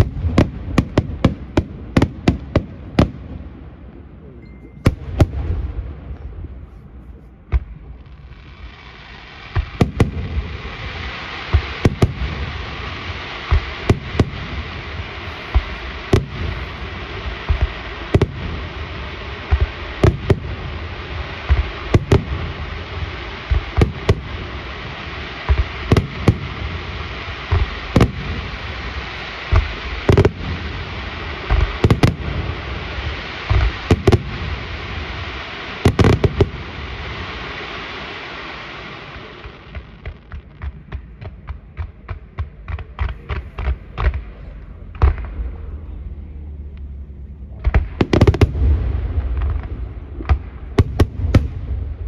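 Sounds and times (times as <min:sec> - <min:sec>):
steady hiss: 0:00.0 - 0:52.0
firework shells bursting: 0:09.4 - 0:38.3.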